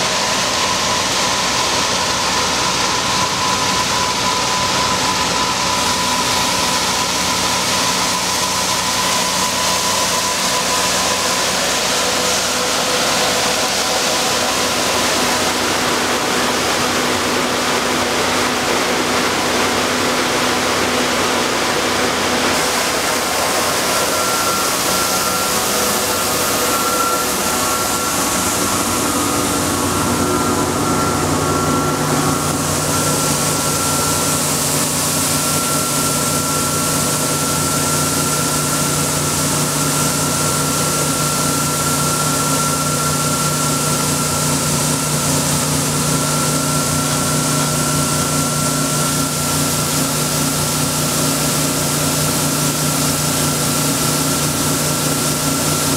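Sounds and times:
combine harvester engine humming: 0.0s - 55.9s.

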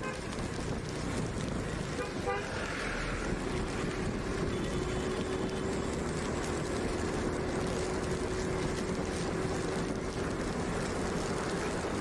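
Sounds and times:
road and wind noise: 0.0s - 12.0s
motorbike engine hum: 3.3s - 12.0s.

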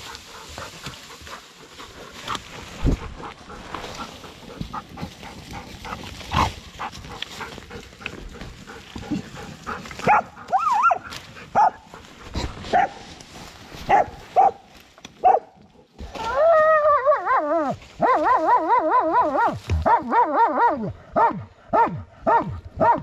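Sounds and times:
dogs scrabbling in dirt and leaves: 0.0s - 16.0s
dogs barking sharply: 10.0s - 11.9s, 13.9s - 14.6s, 15.2s - 15.6s, 18.0s - 23.0s.

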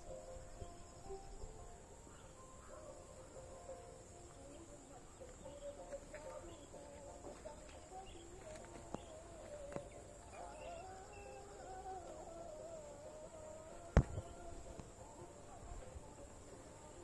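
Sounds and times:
high-pitched insect drone: 0.0s - 4.6s, 7.9s - 15.3s
faint wavering tones: 7.8s - 17.0s.

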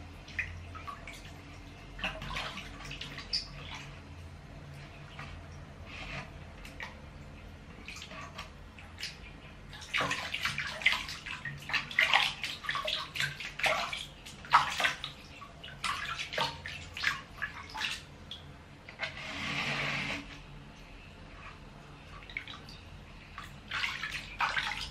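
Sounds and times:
water splashing in a basin: 0.0s - 4.2s, 4.8s - 20.4s, 22.0s - 24.9s.

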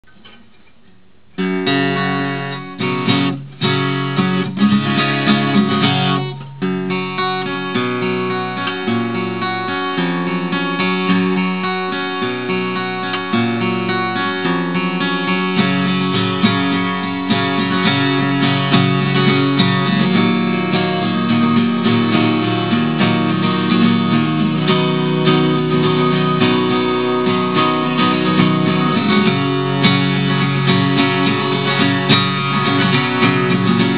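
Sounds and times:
acoustic guitar playing: 0.0s - 33.9s.

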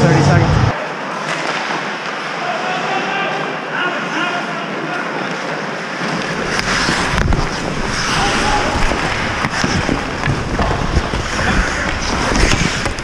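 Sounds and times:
skates scraping ice: 1.0s - 13.0s
stick or puck clacks: 6.0s - 13.0s.

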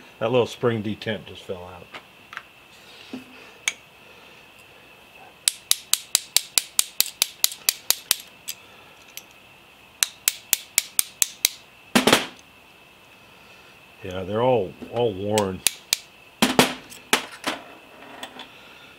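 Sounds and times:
small hammer tapping metal pins: 5.4s - 8.3s, 10.0s - 12.3s.

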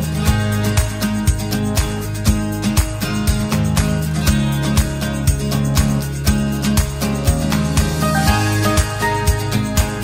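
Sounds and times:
strummed acoustic guitar: 0.0s - 10.0s.

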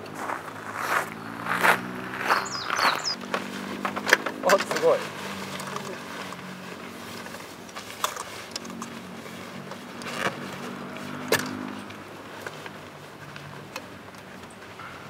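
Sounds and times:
sharp clicks and knocks: 3.2s - 4.9s.

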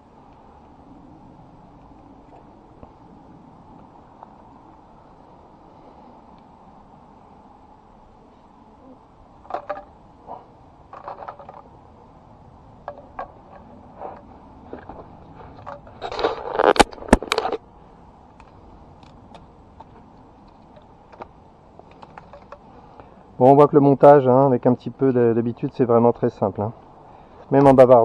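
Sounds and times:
plastic tubes scraping: 12.9s - 17.6s.

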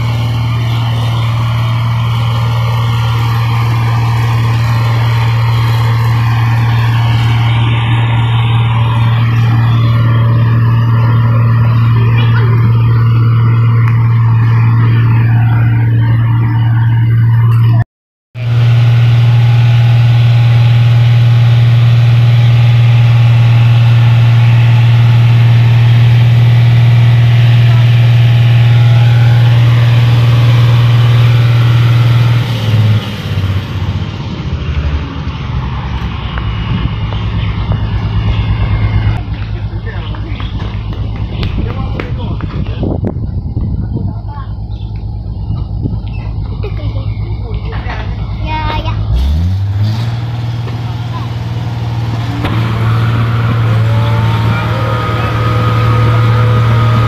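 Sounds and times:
combine harvester engine running: 0.0s - 17.8s, 18.4s - 57.0s.

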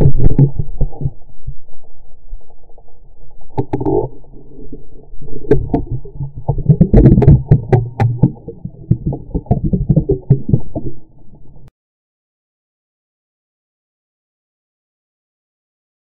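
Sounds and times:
muffled underwater water rumble: 0.0s - 11.7s.

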